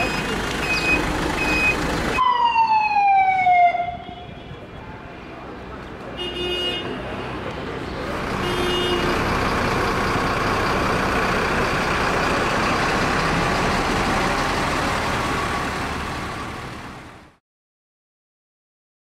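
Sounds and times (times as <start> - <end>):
large vehicle engine running: 0.0 - 2.2, 7.4 - 17.4
short pitched beep: 0.1 - 1.8.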